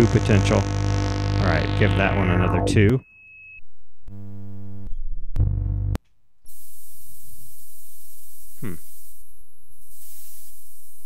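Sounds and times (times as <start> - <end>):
noisy synth hiss: 0.0 - 2.9, 6.5 - 11.0
buzzing synth tones: 0.0 - 3.0
low hum: 0.0 - 3.0, 3.6 - 6.0
high synth beep: 1.8 - 3.6.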